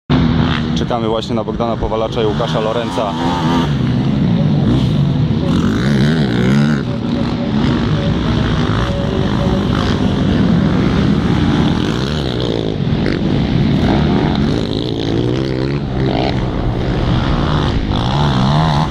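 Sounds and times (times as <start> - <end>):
quad engines revving: 0.1 - 18.9.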